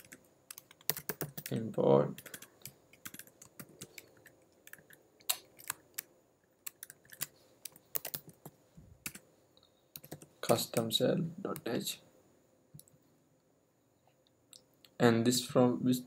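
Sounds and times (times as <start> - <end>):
typing on a computer keyboard: 0.0 - 9.2, 10.0 - 10.9.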